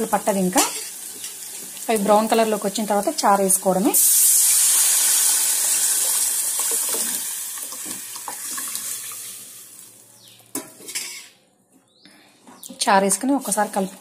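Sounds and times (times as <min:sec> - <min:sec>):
broth pouring into sizzling oil: 0:04.0 - 0:07.6.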